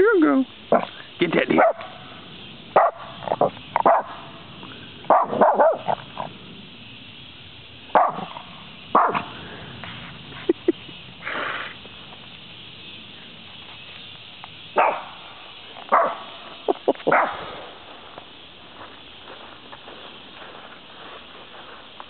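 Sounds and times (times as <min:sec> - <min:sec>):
small dog barking: 0:01.5 - 0:02.0, 0:02.8 - 0:04.3, 0:05.1 - 0:06.0, 0:07.9 - 0:09.3, 0:14.8 - 0:15.2, 0:15.9 - 0:16.4, 0:17.1 - 0:17.4.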